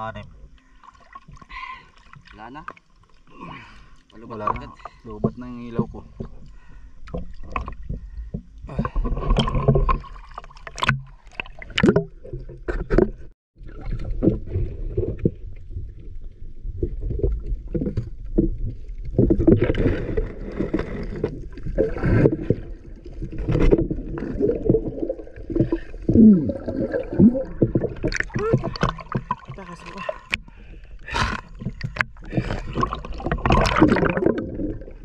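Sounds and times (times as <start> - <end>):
water sloshing and churning: 0.1 - 35.0
underwater knocks: 4.5 - 6.4, 16.8 - 30.4, 31.6 - 34.9
bubbling water: 13.6 - 35.0.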